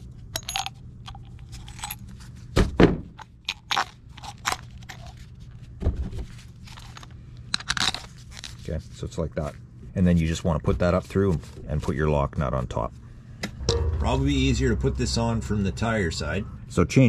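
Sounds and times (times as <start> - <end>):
heavy thump: 13.4 - 16.3.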